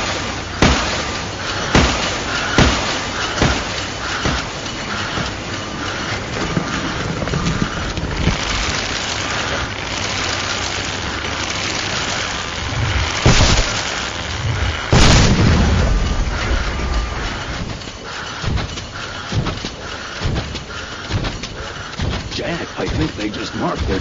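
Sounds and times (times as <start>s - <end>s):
rough rumbling of digging machinery: 0.0s - 24.0s
cartoon explosions: 8.2s - 17.8s.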